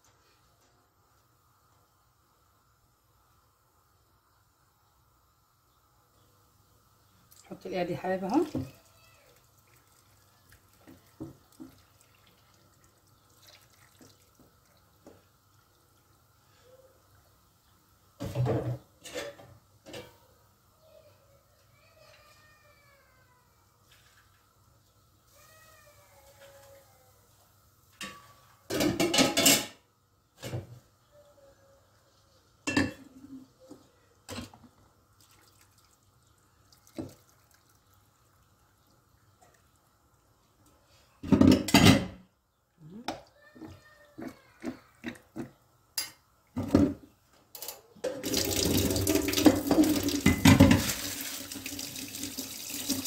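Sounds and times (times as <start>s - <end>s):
soft drips: 8.3s - 16.4s, 35.1s - 40.8s
broth pouring into clay pot: 48.2s - 53.0s.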